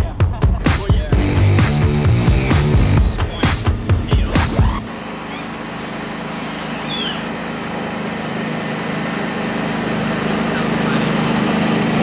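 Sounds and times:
golf cart engine running: 4.8 - 12.0.

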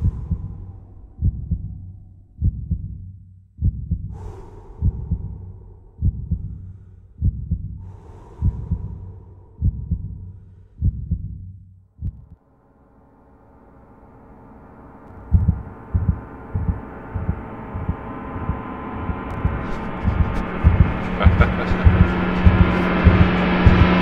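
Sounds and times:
heartbeat thumps: 0.0 - 12.4, 15.2 - 24.0
sustained synth tone: 12.6 - 24.0
airy whooshes: 15.1 - 24.0.

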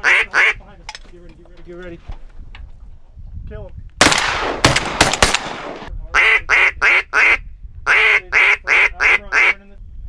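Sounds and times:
duck call quacks: 0.0 - 0.6, 6.2 - 9.6
shotgun shots: 4.0 - 5.9.

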